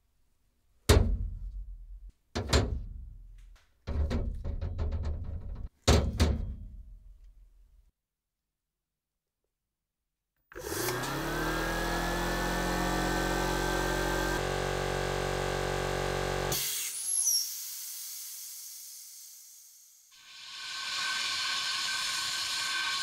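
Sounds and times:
air compressor motor whining: 10.6 - 17.2
air hissing out: 16.5 - 23.0.

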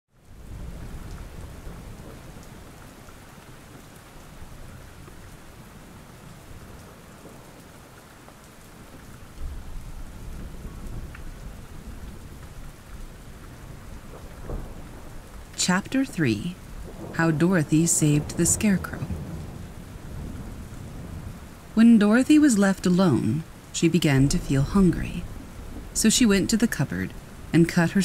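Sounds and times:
steady rain: 0.1 - 28.0
thunder rumble: 9.2 - 28.0.

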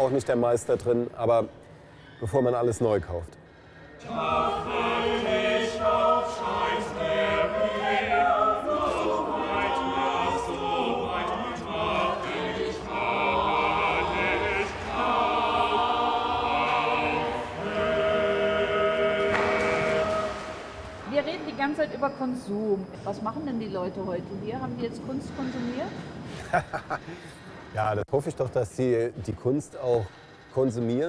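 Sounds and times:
mixed choir singing: 4.0 - 22.1.

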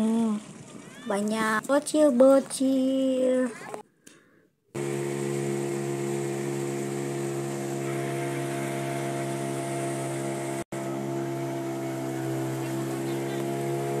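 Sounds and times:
boat engine running: 4.8 - 14.0.

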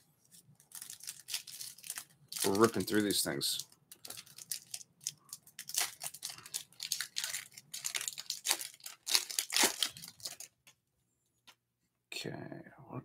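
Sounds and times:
wrapper ripping and crinkling: 0.3 - 10.6.

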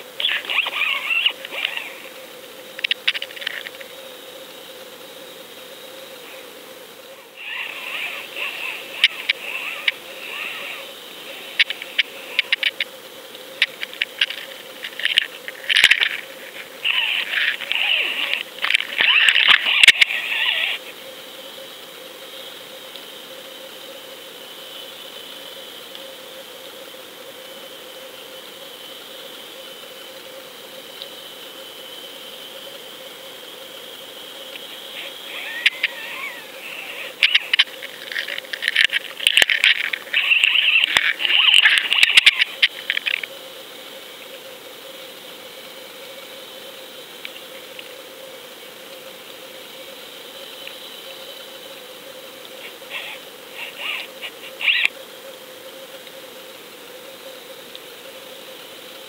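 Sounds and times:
faint steady hum: 0.0 - 59.0
sharp underwater clicks: 37.2 - 43.3.

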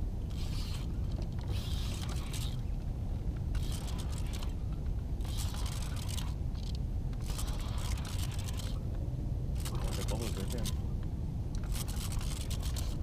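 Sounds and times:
steady low rumble: 0.0 - 13.0
fishing reel cranking: 0.3 - 2.6, 3.6 - 4.6, 5.2 - 8.8, 9.6 - 10.8, 11.6 - 13.0.

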